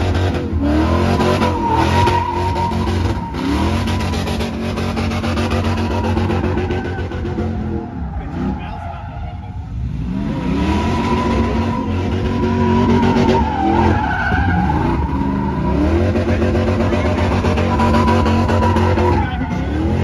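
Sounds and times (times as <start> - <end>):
tire squealing: 0.0 - 20.0
truck engine revving high: 0.0 - 20.0.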